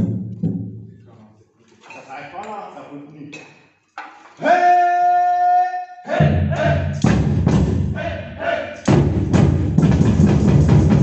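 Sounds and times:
bass drums: 0.0 - 1.0, 6.2 - 8.0, 8.9 - 11.0
long held vocal call: 4.4 - 7.0, 7.9 - 8.9
short shouted calls: 4.4 - 7.0, 8.0 - 8.9
snare drums: 6.2 - 8.1, 8.8 - 11.0.

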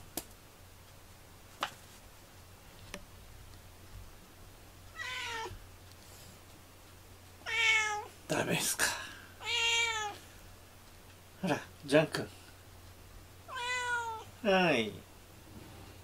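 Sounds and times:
cat meowing: 5.0 - 5.6, 7.4 - 8.1, 9.4 - 10.2, 13.5 - 14.3.

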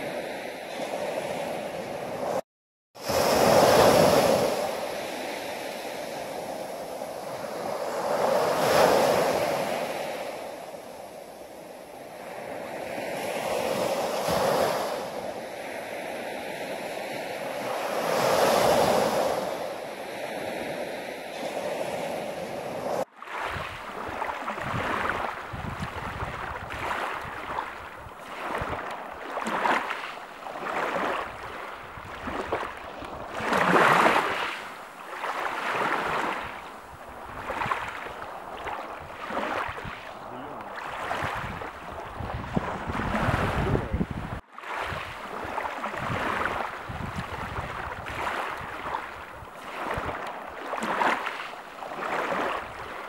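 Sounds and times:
small waves breaking on shore: 0.0 - 2.4, 3.0 - 53.0
waves lapping on pebbles: 23.1 - 43.7, 44.5 - 53.0.

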